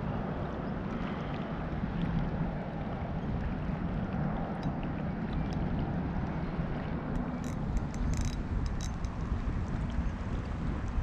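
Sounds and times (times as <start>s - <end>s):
wind rumble on microphone: 0.0s - 11.0s
faint ticks: 7.1s - 9.3s.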